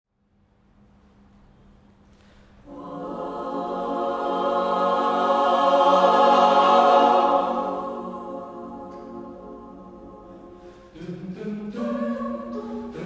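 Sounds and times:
choir singing a cappella: 0:02.6 - 0:13.0.

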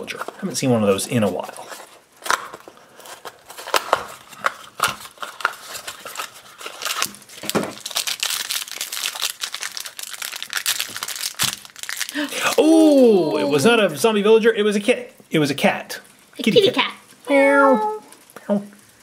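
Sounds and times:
foil wrapper crinkling and tearing: 0:00.0 - 0:13.6.

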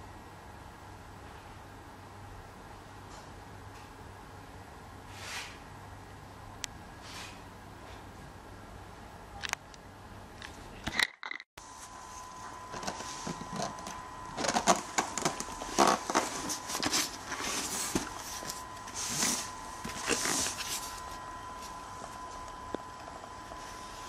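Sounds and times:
hands handling cardboard box: 0:12.7 - 0:22.2.

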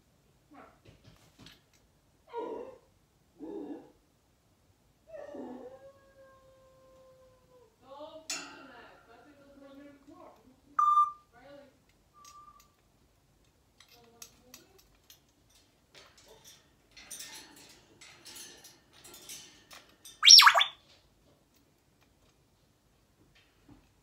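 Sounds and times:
parrot squawk: 0:10.8 - 0:11.2, 0:20.2 - 0:20.7.

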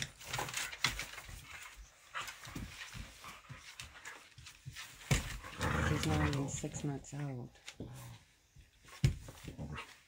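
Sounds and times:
claws scrabbling on wood floor: 0:00.0 - 0:10.0
dogs growling and grunting: 0:05.1 - 0:07.0.

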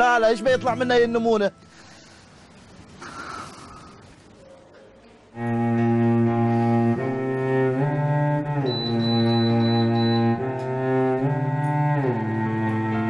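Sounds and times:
faint background hiss: 0:00.0 - 0:08.6
low bowed strings score: 0:05.4 - 0:13.0.

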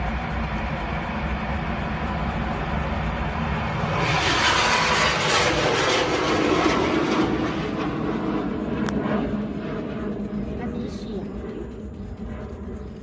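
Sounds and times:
rocket rushing hiss: 0:03.9 - 0:07.8.

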